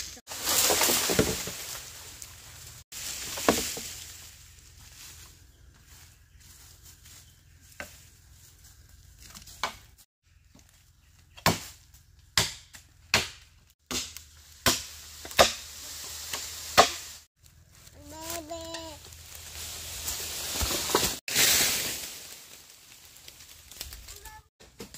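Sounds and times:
blade chopping strikes: 12.4s - 15.7s, 16.3s - 17.1s.

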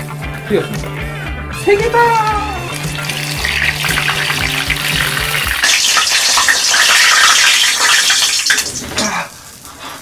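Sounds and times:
deep-frying sizzle with crackles: 2.7s - 10.0s.

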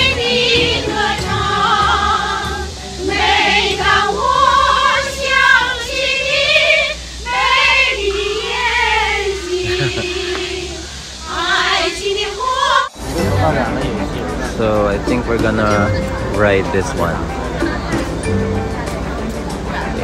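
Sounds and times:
women singing together: 0.0s - 13.2s.

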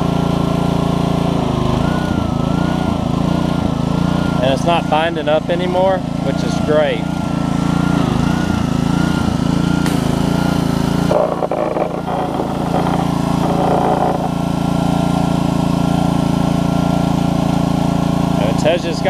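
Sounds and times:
pressure washer engine running: 0.0s - 19.0s
water jet hissing on concrete: 9.8s - 18.6s.

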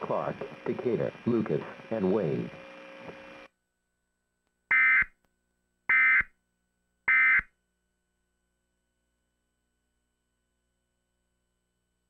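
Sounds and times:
buzzing data tone bursts: 7.1s - 7.5s.

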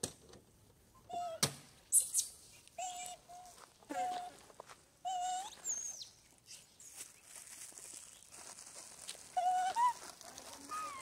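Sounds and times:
macaques high-pitched cries: 2.8s - 4.3s, 5.1s - 6.1s, 9.4s - 11.0s.

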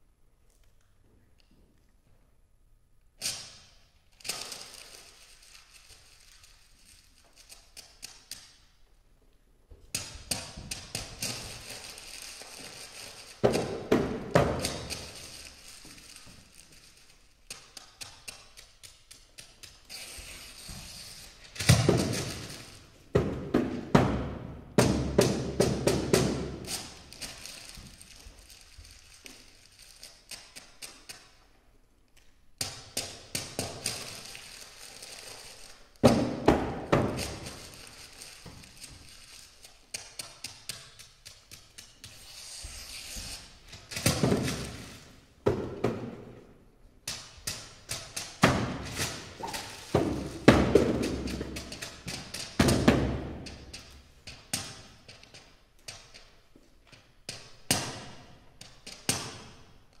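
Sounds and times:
paper rustling and tearing: 48.8s - 50.4s.

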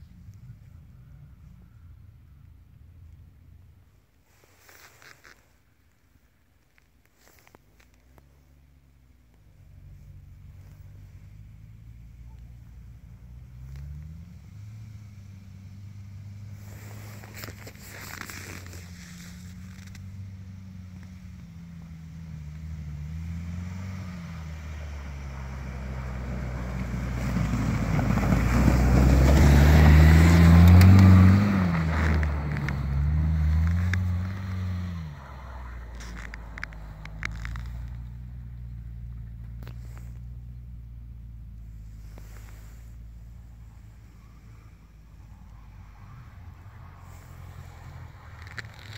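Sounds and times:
tyres on snow: 4.0s - 48.9s
suv engine revving: 9.5s - 48.9s.

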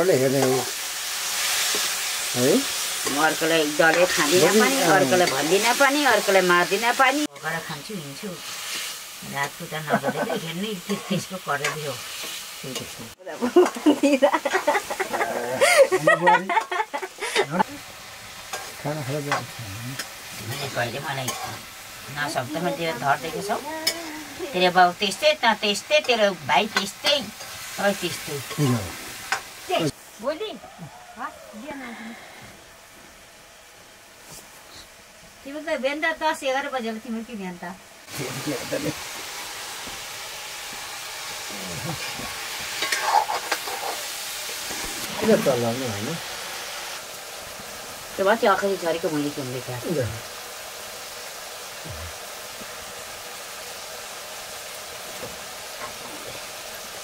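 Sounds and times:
pan sizzling: 0.0s - 57.0s
metal spoon scraping a pan: 18.5s - 21.6s, 42.6s - 45.4s
metal ladle scraping wok: 42.4s - 45.3s.

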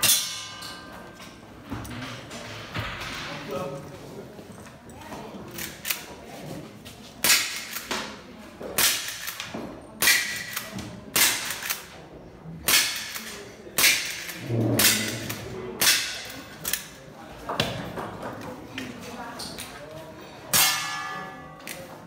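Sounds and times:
steel plate target ringing: 0.0s - 1.0s, 20.5s - 21.6s.

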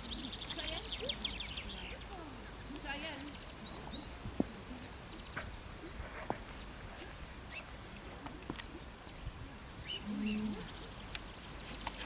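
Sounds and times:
faint bird chirps: 7.5s - 7.7s, 9.1s - 12.0s.

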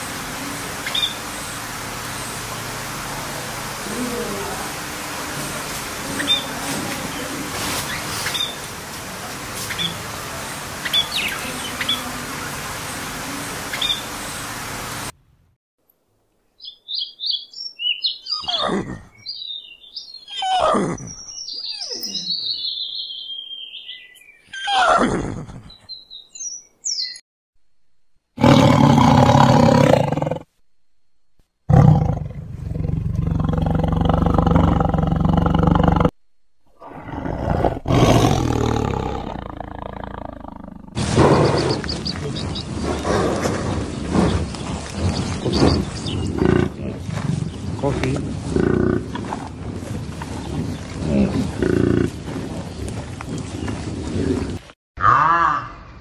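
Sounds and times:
budgerigars chirping: 0.8s - 1.2s, 7.9s - 8.7s, 10.8s - 12.2s, 21.2s - 24.2s, 41.2s - 43.2s, 44.0s - 46.3s.

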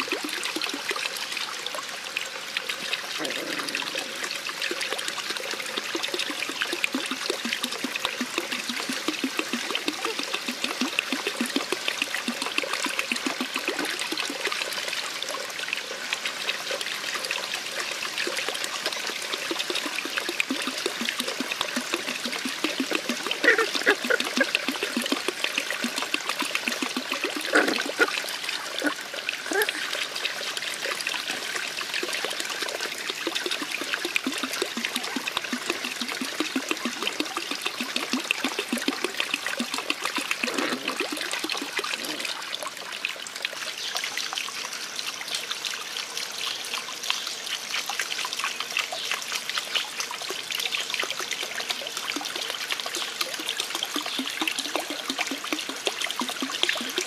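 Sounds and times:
puppies lapping and chewing: 22.4s - 29.8s.

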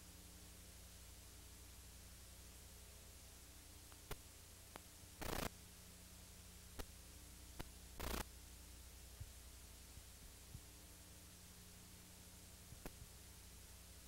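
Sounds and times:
tape hum and hiss: 0.0s - 14.0s
burst of static: 5.2s - 5.5s, 8.0s - 8.3s.

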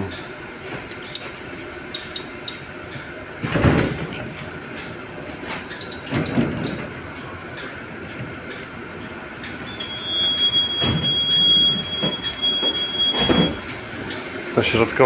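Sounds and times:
knocks inside tram: 3.4s - 4.4s, 10.4s - 13.8s
high-pitched alarm whistle: 9.7s - 13.7s.

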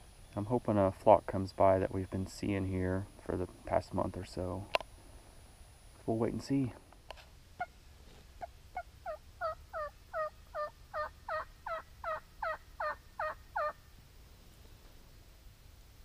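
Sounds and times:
turkey yelps: 8.4s - 13.8s.

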